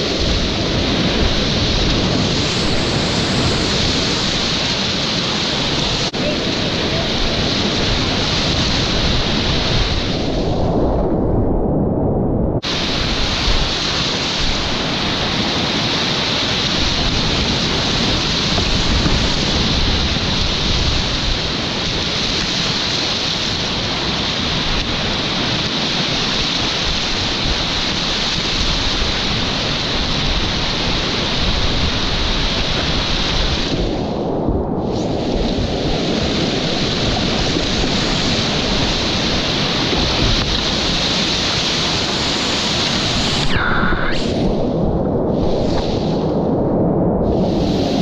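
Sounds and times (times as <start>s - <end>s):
whitewater rapids rushing: 35.0s - 44.6s.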